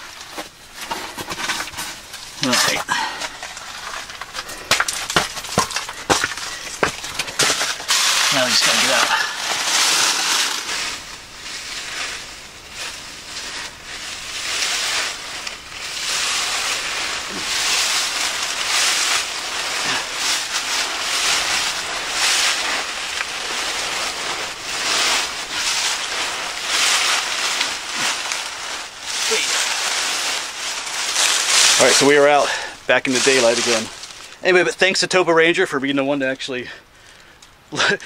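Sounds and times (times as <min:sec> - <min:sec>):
dry leaves crunching and rustling: 0:00.0 - 0:34.7.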